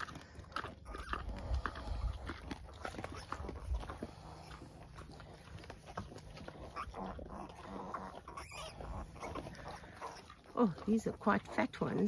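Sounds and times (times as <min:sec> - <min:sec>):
pig grunts and squeaks: 0:00.0 - 0:12.0
piglets squeaking: 0:00.0 - 0:12.0.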